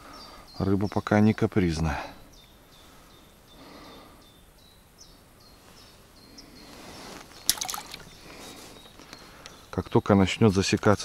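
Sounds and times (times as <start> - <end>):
water trickling and dripping: 7.4 - 8.2.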